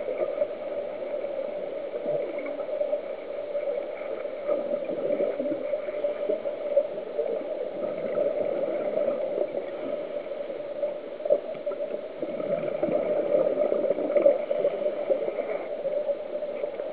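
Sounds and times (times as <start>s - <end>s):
constant underwater crackle: 0.0s - 16.9s
underwater hum: 0.0s - 16.9s
regulator bubbling: 7.2s - 10.1s, 11.4s - 15.7s.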